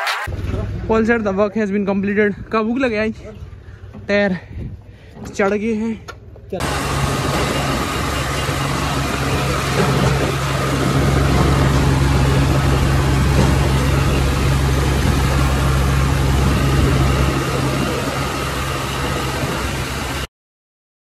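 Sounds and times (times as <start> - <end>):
road and wind noise: 0.2 - 20.3
tractor diesel engine running: 6.2 - 20.3.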